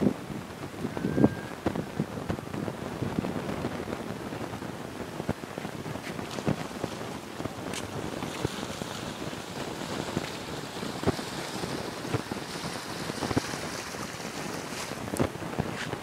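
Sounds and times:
wind on microphone: 0.0s - 16.0s
small crackles: 5.3s - 16.0s.

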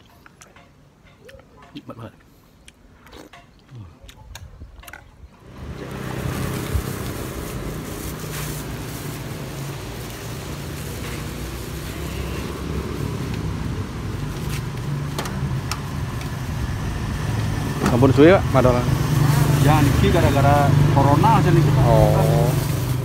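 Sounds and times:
street traffic: 0.0s - 23.0s
vehicle engine running: 5.4s - 23.0s.

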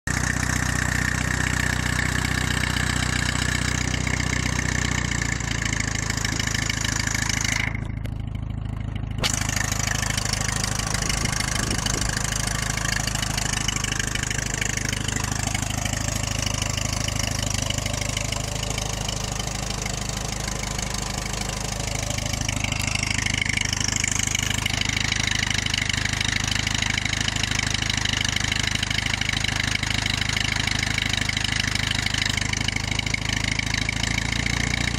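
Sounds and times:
tractor engine running: 0.0s - 34.9s.

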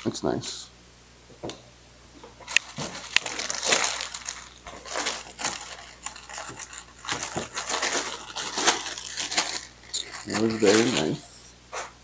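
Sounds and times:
plastic packaging crinkling: 2.4s - 11.2s.

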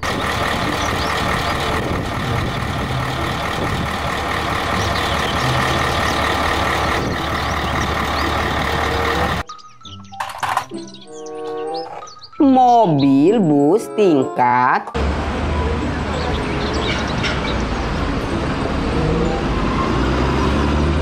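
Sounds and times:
diesel truck engine running: 0.0s - 9.5s, 15.0s - 21.0s.

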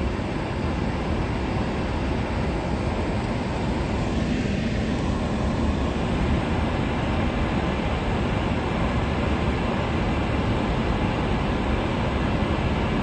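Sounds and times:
car cabin road and engine noise: 2.5s - 6.9s.

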